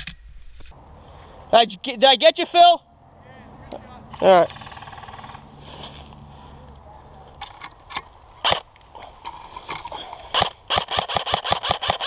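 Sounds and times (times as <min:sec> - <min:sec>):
sharp cracks: 0:07.4 - 0:09.0, 0:10.2 - 0:12.0
airsoft rifle shots: 0:08.4 - 0:08.7, 0:10.3 - 0:12.0.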